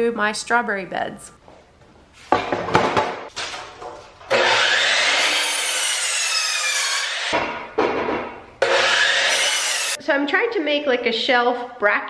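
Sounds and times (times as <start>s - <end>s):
miter saw cutting wood: 4.3s - 7.4s, 8.6s - 10.0s.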